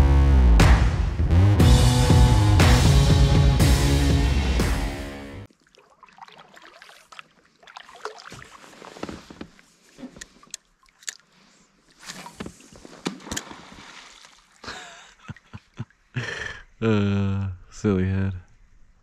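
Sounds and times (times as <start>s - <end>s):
small splashes: 5.5s - 14.7s
water sloshing and dripping: 5.5s - 14.7s.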